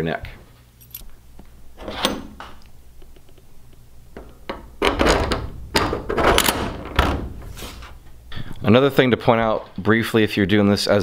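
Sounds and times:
metal knocking and scraping: 1.4s - 9.8s.

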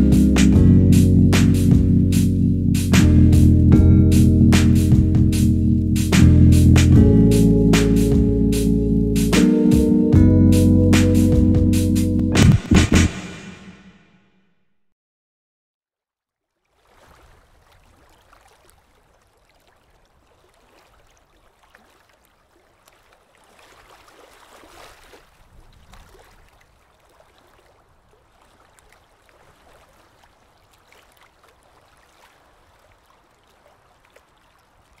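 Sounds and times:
water trickling and lapping: 16.4s - 35.0s
small splashes and drips: 16.5s - 35.0s.

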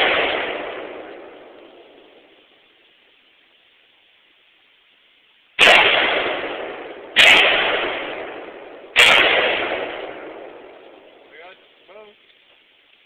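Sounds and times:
rifle shots with echo: 0.0s - 2.4s, 5.6s - 11.4s.

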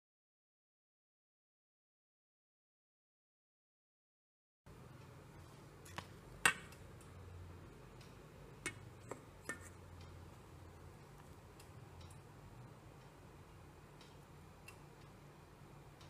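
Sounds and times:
faint low hum: 4.7s - 16.0s
light metallic taps and clicks: 8.0s - 10.4s.

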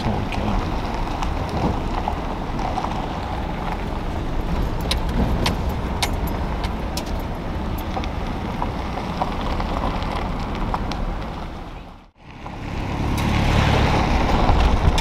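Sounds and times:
truck engine and tyres on gravel: 0.0s - 15.0s.

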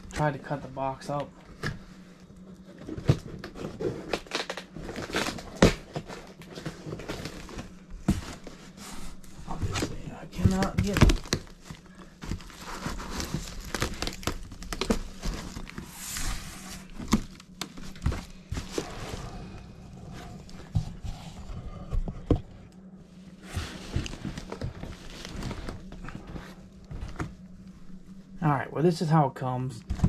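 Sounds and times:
cardboard box rustling: 2.7s - 22.5s, 23.4s - 27.4s.

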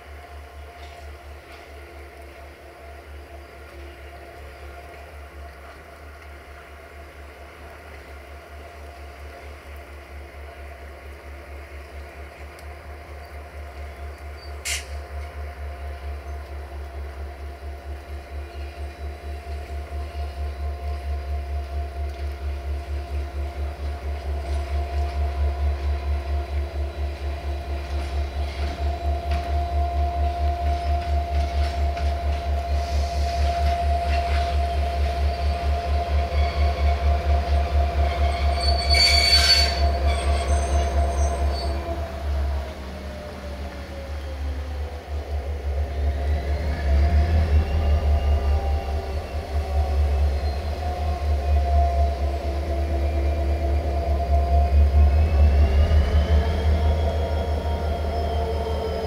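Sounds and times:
diesel locomotive engine throbbing: 0.0s - 59.0s
train wheels squealing on rails: 13.1s - 17.1s, 17.8s - 59.0s.

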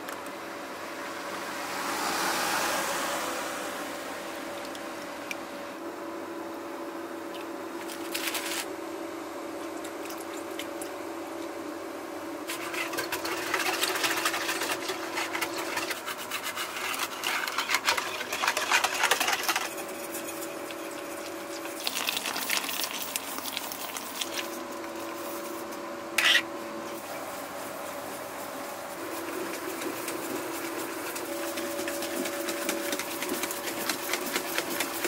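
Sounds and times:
whisk beating batter in a bowl: 12.4s - 26.4s, 27.0s - 35.0s.

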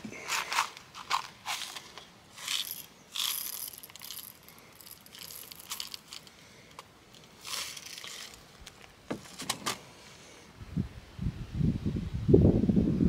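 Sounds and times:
lead shot rattling in plastic cup: 0.5s - 8.4s.

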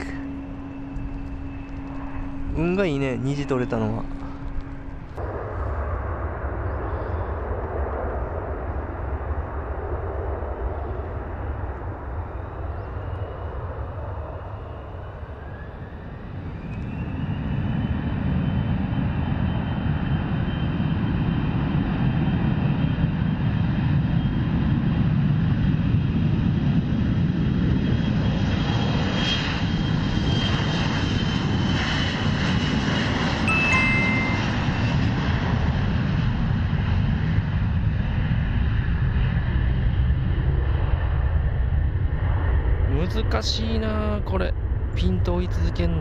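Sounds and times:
rising engine whine: 0.0s - 23.3s, 27.3s - 42.6s.

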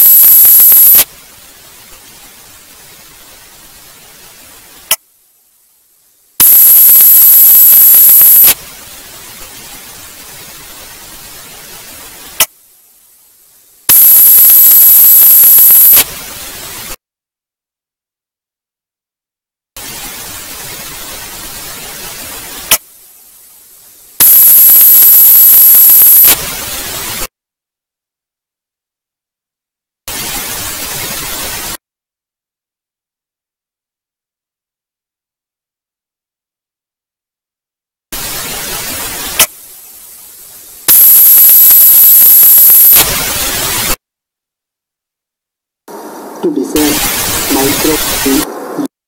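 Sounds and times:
loud static burst: 0.0s - 5.0s, 6.4s - 13.1s, 13.8s - 17.0s, 19.8s - 27.3s, 30.1s - 31.8s, 38.2s - 44.0s, 45.9s - 48.9s
static hiss: 0.0s - 17.0s, 19.8s - 27.3s, 30.1s - 31.8s, 38.1s - 44.0s, 45.9s - 49.0s
piercing high whine: 6.4s - 8.6s.

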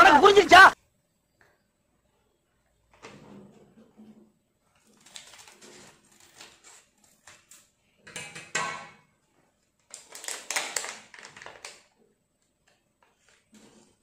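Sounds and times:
chips packet crinkling: 4.8s - 7.6s, 9.8s - 12.0s.

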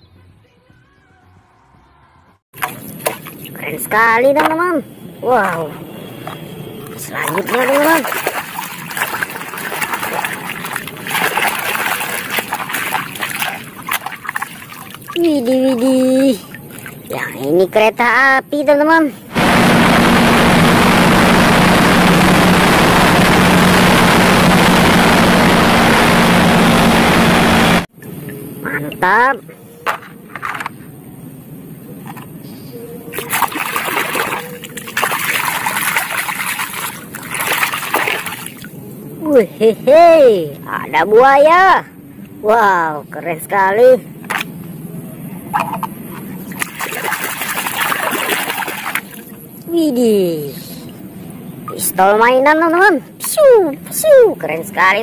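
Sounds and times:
puddle water splashing: 2.6s - 3.8s, 6.2s - 17.2s, 33.2s - 38.7s, 45.6s - 49.4s.

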